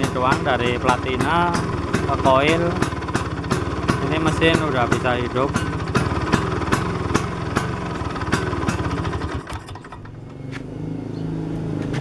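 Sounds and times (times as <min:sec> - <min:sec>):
scooter engine running: 0:00.0 - 0:12.0.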